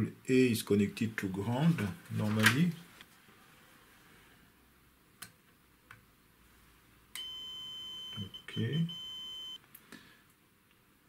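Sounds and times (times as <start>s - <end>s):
multimeter high beep: 7.2s - 9.6s.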